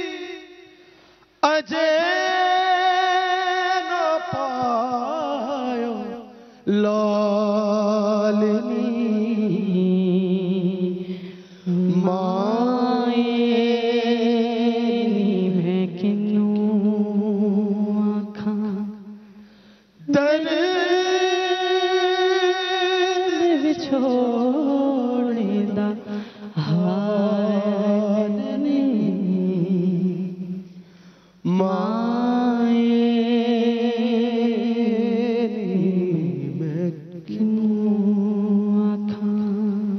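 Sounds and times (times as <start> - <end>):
man singing with vibrato: 0.0 - 39.9.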